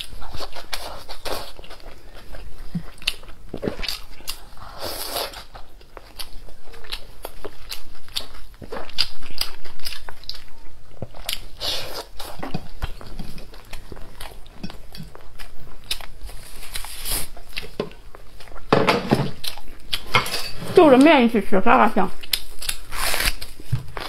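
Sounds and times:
chewing meat mouth clicks: 22.2s - 23.5s.

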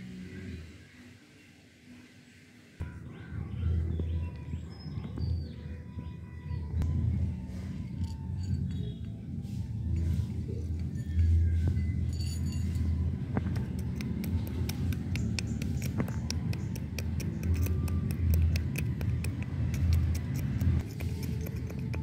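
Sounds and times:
pestle pounding peppercorns: 13.4s - 22.0s.

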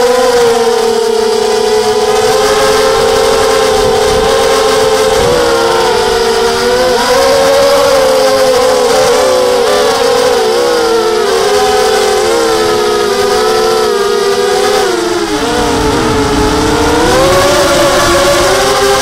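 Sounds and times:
drone motors whining: 0.0s - 19.0s
wind rush: 2.0s - 8.5s, 15.1s - 19.0s.

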